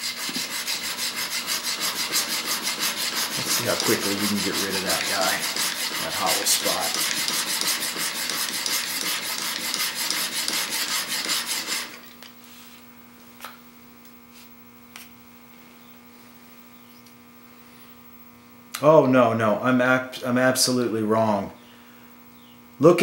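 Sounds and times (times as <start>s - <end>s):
chisel scraping on sharpening plate: 0.0s - 11.9s
steady hum: 0.0s - 23.0s.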